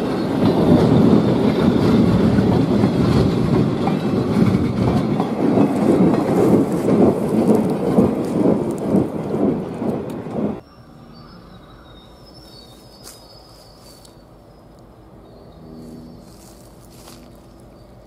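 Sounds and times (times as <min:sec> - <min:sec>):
train wheels rumbling: 0:00.0 - 0:10.7.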